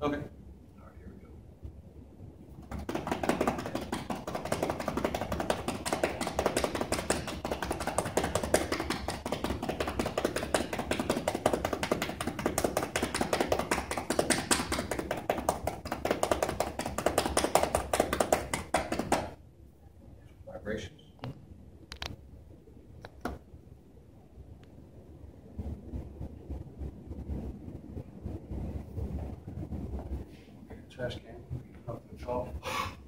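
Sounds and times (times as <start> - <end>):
cupped hands clapping on back: 2.6 - 19.4.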